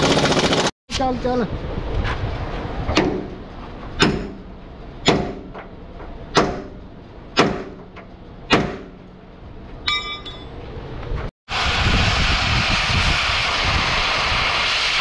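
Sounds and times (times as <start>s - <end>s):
sledgehammer striking steel: 2.9s - 3.4s, 4.0s - 5.7s, 6.3s - 9.2s, 9.9s - 10.6s.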